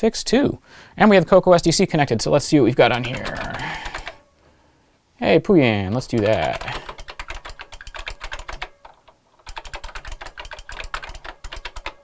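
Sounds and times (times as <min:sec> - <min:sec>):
fast typing on mechanical keyboard: 0:02.6 - 0:04.2, 0:06.0 - 0:12.0
key switches clicking: 0:02.7 - 0:04.2, 0:05.9 - 0:12.0.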